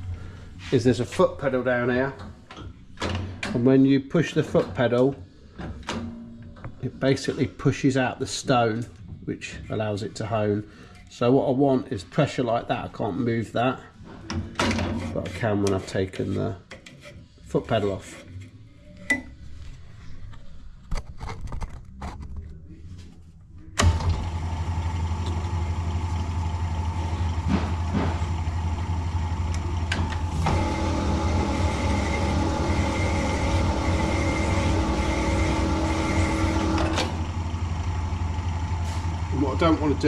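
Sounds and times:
honing machine motor humming: 0:23.8 - 0:40.0.

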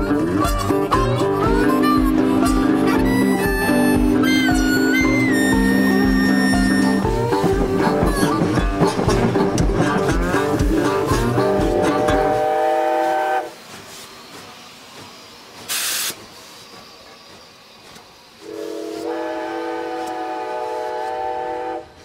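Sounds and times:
train whistle blasts: 0:00.0 - 0:08.6, 0:11.0 - 0:13.6, 0:18.4 - 0:22.0
steam hiss: 0:00.0 - 0:22.0.

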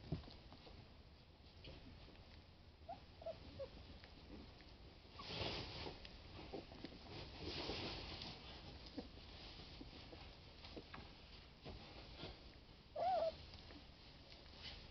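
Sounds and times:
puppies snuffling and rustling: 0:00.0 - 0:14.9
puppies squeaking: 0:02.9 - 0:03.7, 0:13.0 - 0:13.4.

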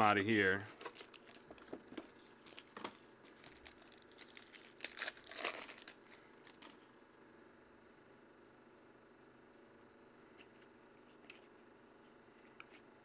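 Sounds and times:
foil wrapper crinkling and tearing: 0:00.2 - 0:06.8.

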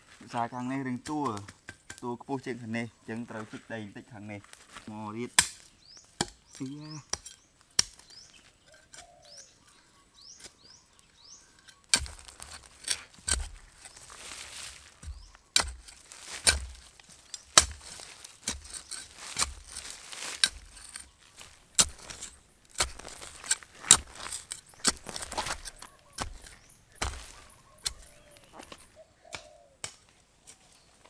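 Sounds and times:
wood being chopped: 0:05.4 - 0:08.2, 0:11.9 - 0:13.9, 0:14.5 - 0:30.1
small bird chirping: 0:05.8 - 0:12.7, 0:13.8 - 0:15.7, 0:16.8 - 0:29.8.

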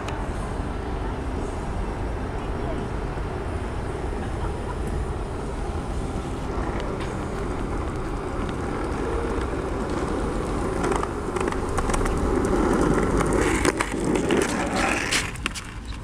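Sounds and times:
skateboard wheels rolling on pavement: 0:00.0 - 0:16.0.

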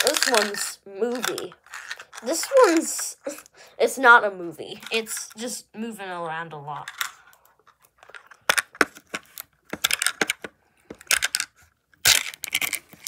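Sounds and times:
plastic capsule clicks and rattles: 0:00.0 - 0:03.5, 0:06.8 - 0:13.0.

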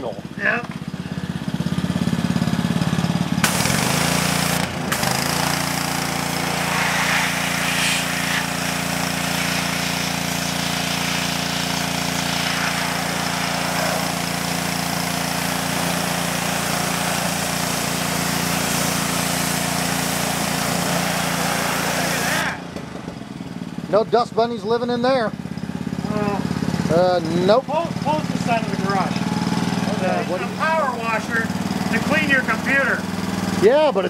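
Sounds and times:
pressure washer water jet hissing: 0:03.4 - 0:22.7.

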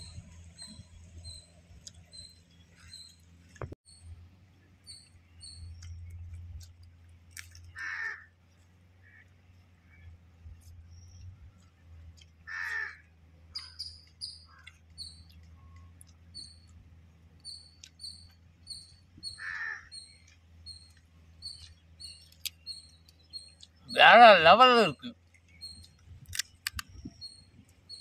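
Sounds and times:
small bird chirping: 0:00.0 - 0:06.9, 0:13.5 - 0:24.1, 0:24.9 - 0:28.0
crow cawing: 0:07.8 - 0:08.3, 0:12.5 - 0:13.1, 0:19.4 - 0:19.9.

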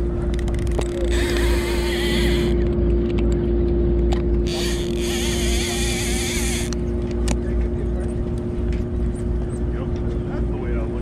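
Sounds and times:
boat engine rumbling: 0:00.0 - 0:11.0.

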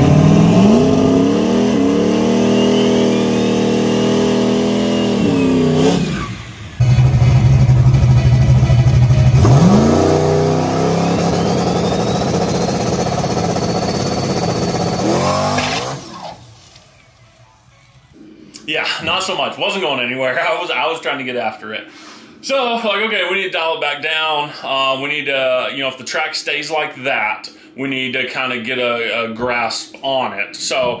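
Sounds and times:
race car engine revving: 0:00.0 - 0:16.4
turbo whistle: 0:01.8 - 0:03.9, 0:04.7 - 0:06.8, 0:09.5 - 0:16.4.

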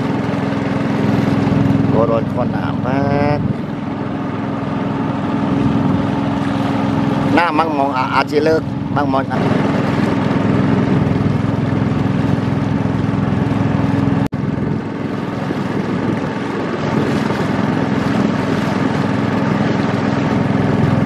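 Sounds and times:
boat engine running: 0:00.0 - 0:21.0.

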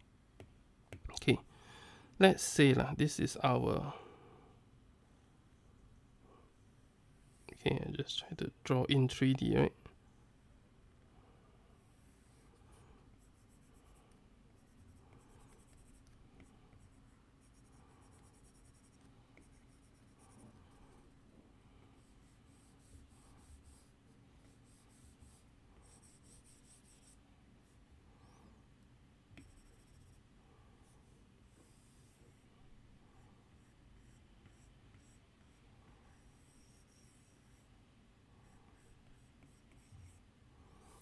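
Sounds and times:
stylus drawing on glass screen: 0:12.0 - 0:21.2, 0:21.9 - 0:28.6, 0:29.3 - 0:41.0.

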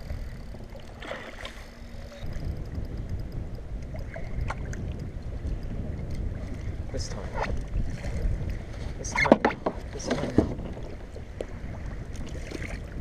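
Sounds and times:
water lapping against kayak: 0:00.0 - 0:13.0
wind buffeting microphone: 0:00.0 - 0:13.0
fishing reel knocks and clicks: 0:01.7 - 0:05.8.

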